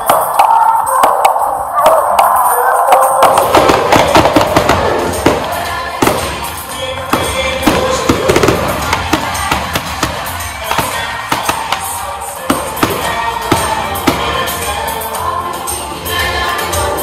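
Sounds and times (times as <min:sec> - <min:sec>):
music: 0:00.0 - 0:17.0
fireworks bangs and crackles: 0:03.0 - 0:15.0.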